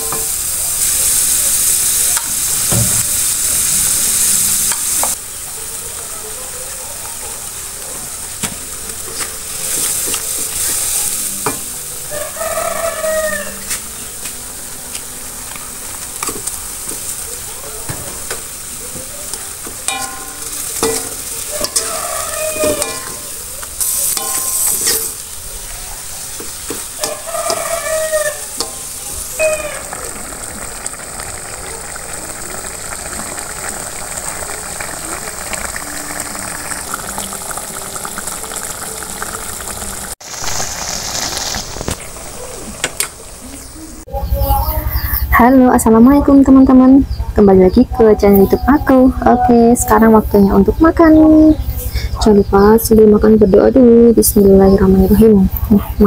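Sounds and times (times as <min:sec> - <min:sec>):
eggs sizzling in a wok: 0:00.0 - 0:56.0
sauce bubbling: 0:18.4 - 0:44.1
metal spoon scraping wok: 0:19.9 - 0:29.8.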